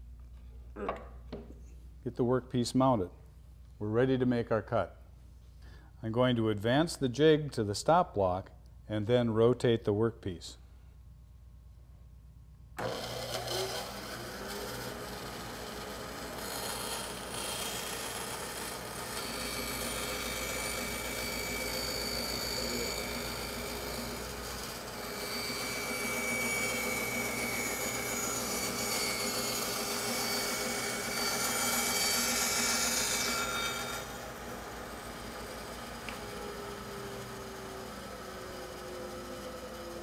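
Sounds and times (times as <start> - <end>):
bandsaw blade cutting wood: 12.8 - 40.0
bandsaw motor hum: 12.8 - 40.0.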